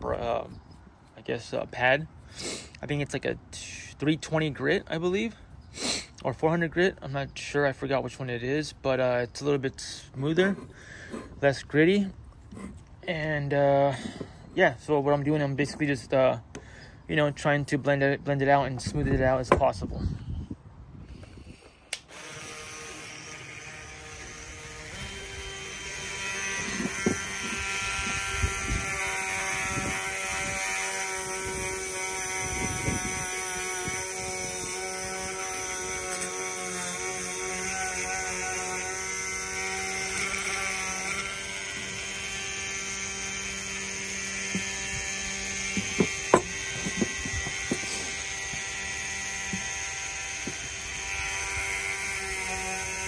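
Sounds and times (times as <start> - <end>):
rotary tool whining: 9.8 - 14.6, 21.2 - 53.0.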